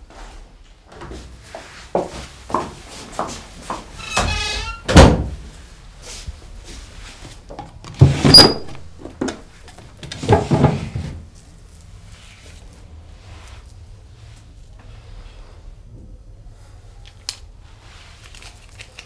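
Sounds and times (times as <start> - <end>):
door creaking on hinges: 3.9 - 5.3
door shutting with a thud: 4.1 - 5.4
rustling handling sounds: 9.0 - 15.7, 16.9 - 19.0.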